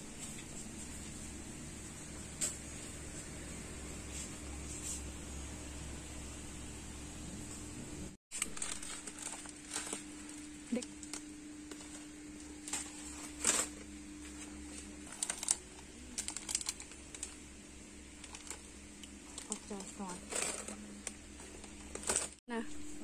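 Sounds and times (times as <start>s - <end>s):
steady low hum: 0.0s - 23.0s
plastic snack packets crinkling: 8.3s - 13.8s, 15.0s - 17.4s, 18.1s - 22.4s.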